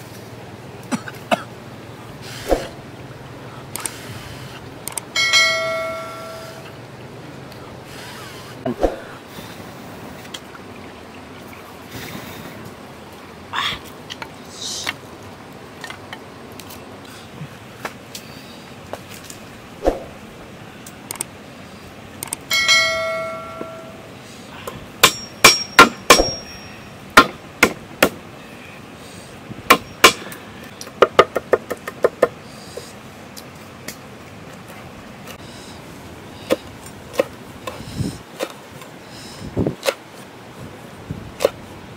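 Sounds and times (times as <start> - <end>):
metallic clang: 25.0 - 26.9.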